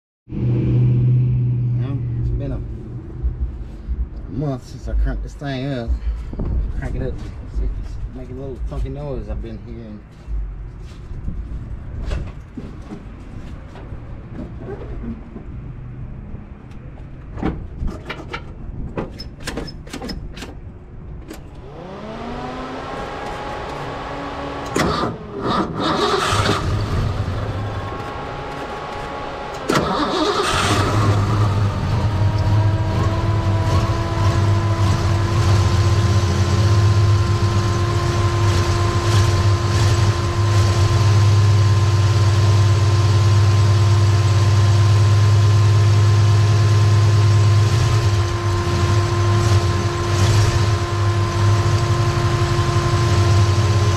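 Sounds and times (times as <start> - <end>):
engine cranking and starting: 24.7 - 27.3, 29.6 - 31.7.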